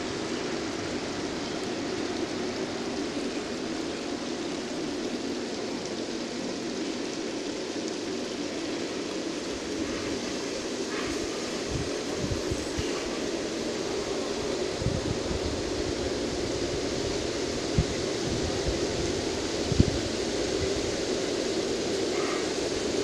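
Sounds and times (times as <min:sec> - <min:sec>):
water running over rocks: 0:00.0 - 0:23.0.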